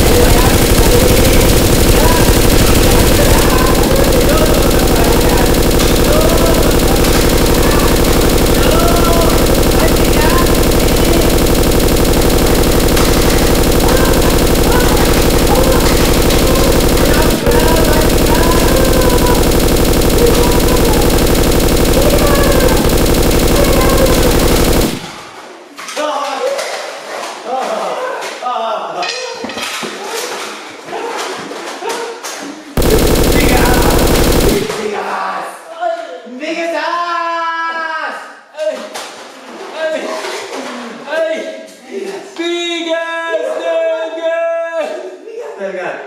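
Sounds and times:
voices shouting: 0.0 - 25.0
automatic gunfire: 0.0 - 25.3, 32.8 - 34.9
rapid machine-gun fire: 0.0 - 25.3, 32.8 - 34.9.

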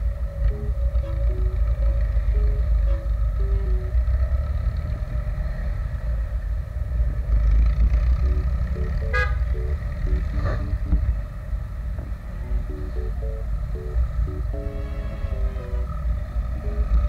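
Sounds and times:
quiet background music: 0.0 - 5.7, 7.9 - 17.0
wind and road rumble: 0.0 - 17.0
vehicle horn beep: 0.9 - 1.6, 2.8 - 3.8, 9.0 - 9.6, 14.6 - 16.0.

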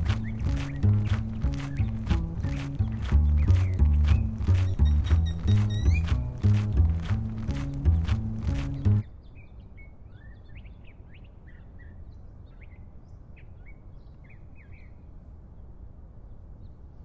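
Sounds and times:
percussive music: 0.0 - 9.0
small birds chirping: 0.0 - 15.1.

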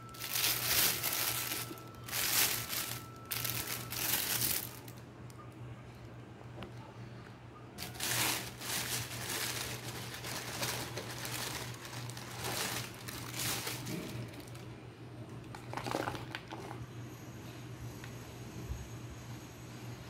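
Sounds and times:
plastic bag crinkling: 0.0 - 5.0, 7.8 - 14.7.

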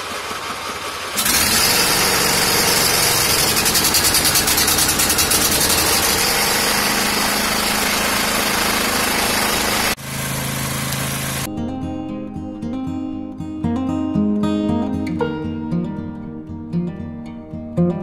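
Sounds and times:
lawn tractor engine running: 0.0 - 11.5.

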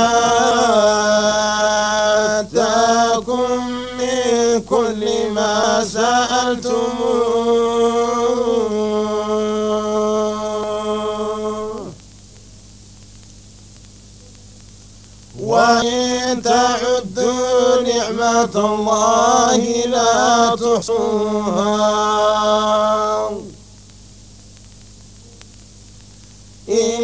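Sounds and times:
man chanting recitation: 0.0 - 12.0, 15.4 - 23.6, 26.7 - 27.0
faint steady hum: 0.0 - 27.0.

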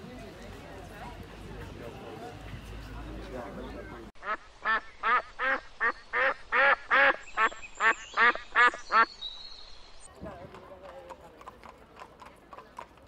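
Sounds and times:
duck quacking: 4.2 - 9.1.

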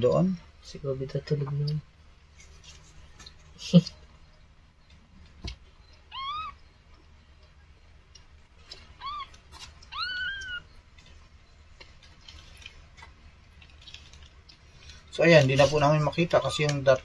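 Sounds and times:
kitten mewing: 6.1 - 6.6, 9.0 - 10.7.

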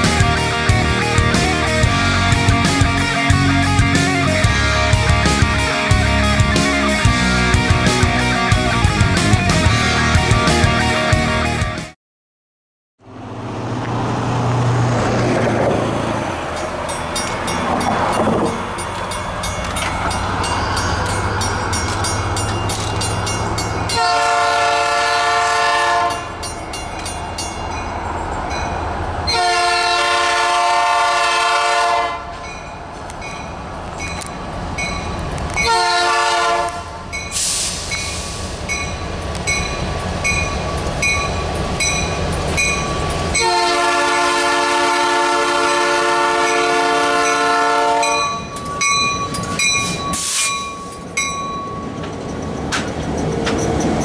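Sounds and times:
diesel locomotive engines rumbling: 0.0 - 12.0, 13.0 - 54.0
train air horn blasts: 24.0 - 26.3, 29.3 - 32.4, 35.6 - 38.4, 43.4 - 48.4, 50.2 - 50.7.

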